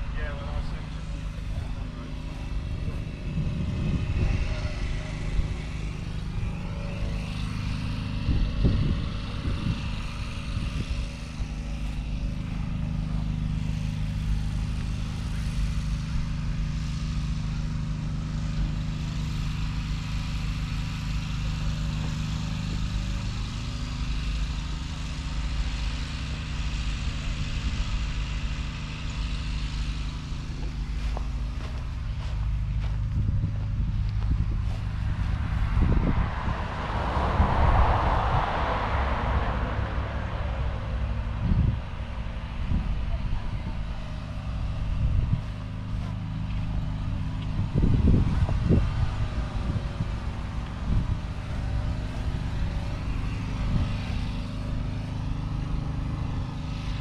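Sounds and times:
low rumble bursts: 0.0 - 15.4, 30.3 - 57.0
engine idling hum: 0.0 - 57.0.

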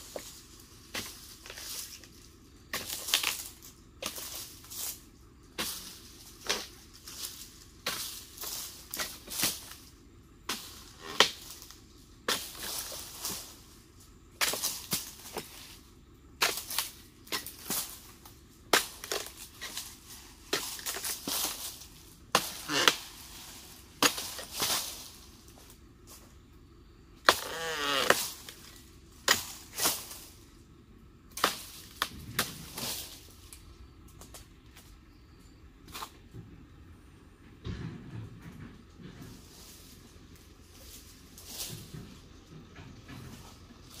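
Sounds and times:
rustle of falling fronds: 0.0 - 35.1, 38.8 - 44.0
long falling creak: 27.3 - 28.5.

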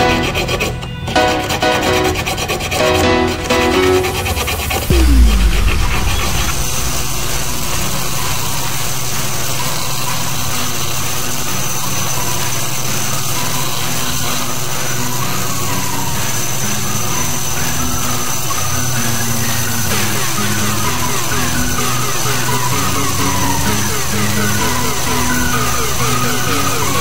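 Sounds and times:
small electric motor running: 6.5 - 27.0.

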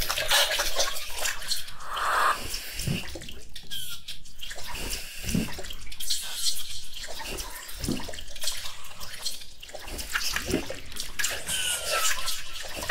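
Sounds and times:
granular synth hiss and clicks: 1.4 - 3.1
low synth swoop: 1.7 - 2.5.

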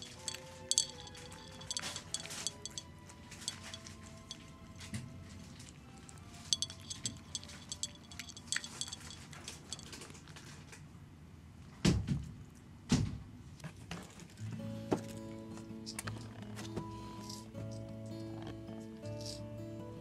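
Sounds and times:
cat eating from dish: 0.0 - 10.9.

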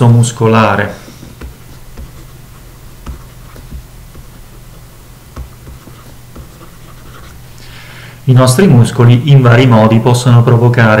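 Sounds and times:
low steady hum: 0.0 - 10.9
stylus writing on tablet: 1.0 - 7.6.

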